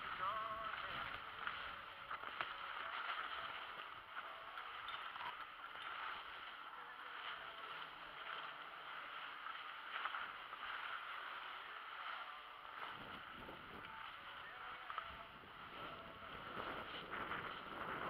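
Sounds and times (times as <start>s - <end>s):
skis scraping on packed snow: 0.0s - 18.0s.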